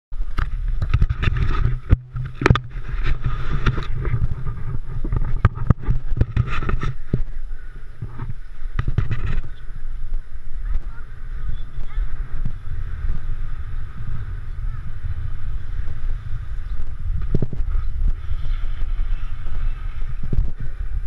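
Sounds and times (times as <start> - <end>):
steady low rumble: 0.2 - 21.0
clicks and knocks on camera housing: 0.3 - 4.2, 5.0 - 7.2.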